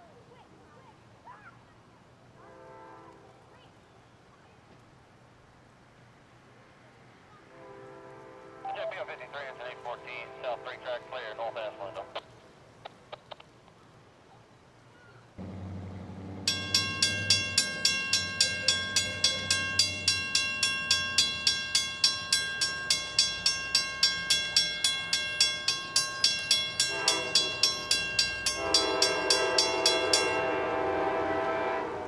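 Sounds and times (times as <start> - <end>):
locomotive horn: 2.4 - 3.4, 7.5 - 12.2, 26.8 - 32.0
crossing bell ringing: 16.4 - 31.2.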